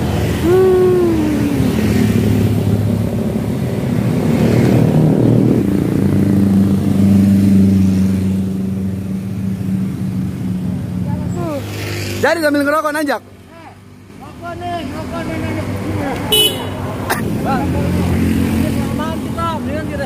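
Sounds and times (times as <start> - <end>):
car engines passing: 0.0 - 20.0
motorcycle engines passing: 0.0 - 20.0.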